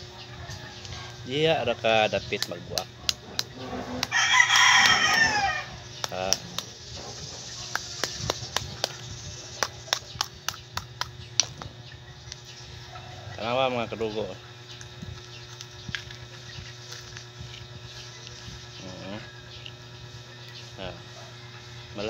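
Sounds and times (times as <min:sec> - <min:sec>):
rooster crowing: 0:03.6 - 0:05.9.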